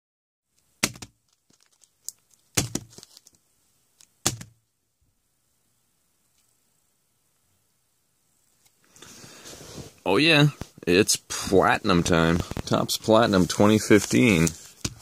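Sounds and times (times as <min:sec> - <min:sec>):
foil wrapper crinkling: 0:01.3 - 0:03.4, 0:12.3 - 0:15.0.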